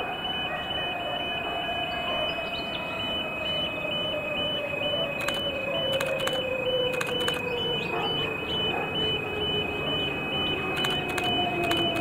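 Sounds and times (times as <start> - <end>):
level crossing alarm: 0.0 - 12.0
train running past: 0.0 - 12.0
wheels clicking over rail joints: 10.7 - 12.0.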